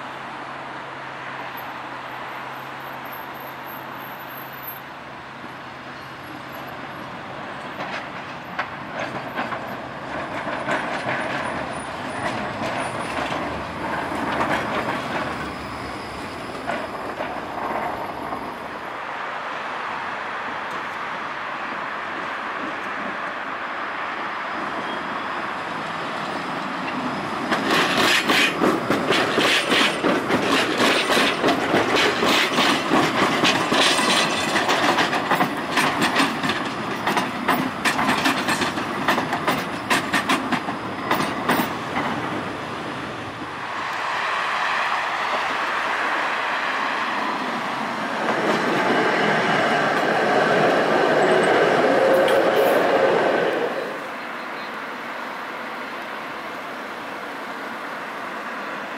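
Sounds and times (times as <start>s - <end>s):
tram running hum: 0.0s - 58.9s
tram wheels clattering over rails: 5.4s - 19.0s, 24.2s - 58.9s.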